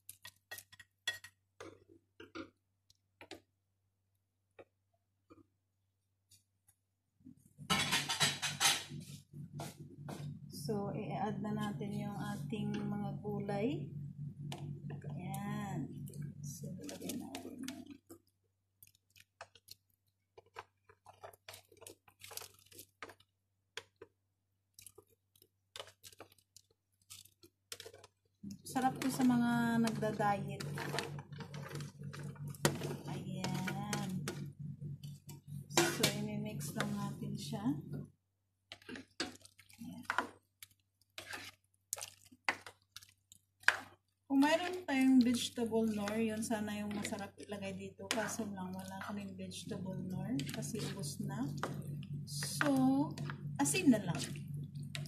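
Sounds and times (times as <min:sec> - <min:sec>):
wet squishes of vegetables: 0:14.4 - 0:55.0.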